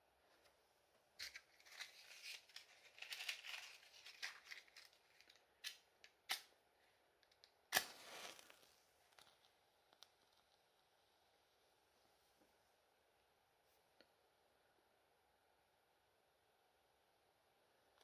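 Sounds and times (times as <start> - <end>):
match and matchbox scratching: 1.2 - 5.4, 7.7 - 9.5
match strike flaring: 7.7 - 9.3.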